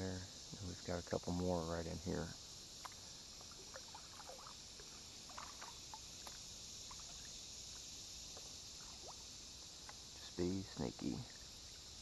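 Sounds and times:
steady high hiss: 0:00.0 - 0:12.0
water drips and trickles: 0:02.8 - 0:12.0.

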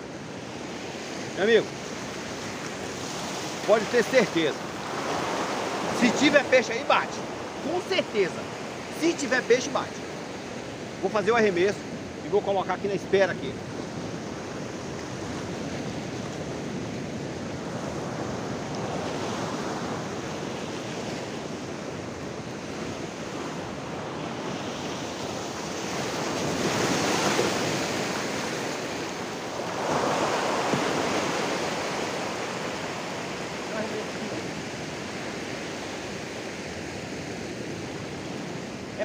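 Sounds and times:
surf breaking on rocks: 0:25.7 - 0:34.6.

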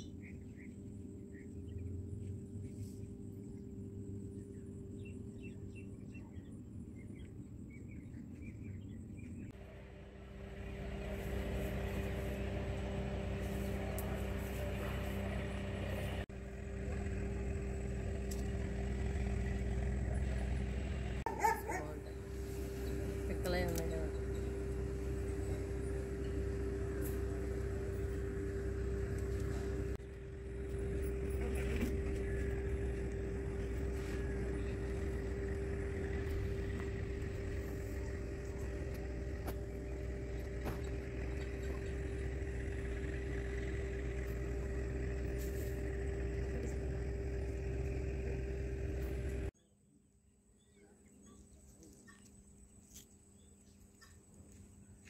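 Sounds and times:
motor running: 0:09.5 - 0:49.5.

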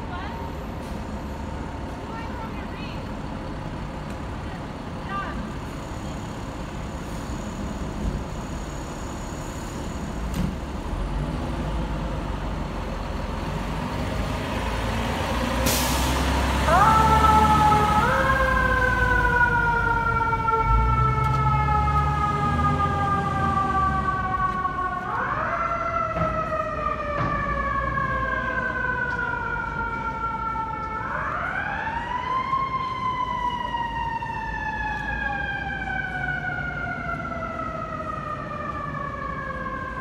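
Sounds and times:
diesel engine running low: 0:00.0 - 0:40.0
mechanical siren wailing: 0:16.7 - 0:40.0.

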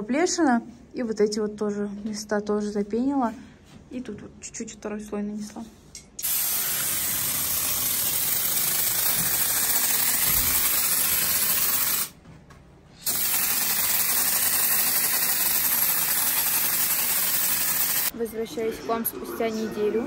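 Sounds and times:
spray foam hissing and sputtering: 0:06.2 - 0:12.1, 0:13.0 - 0:18.1.

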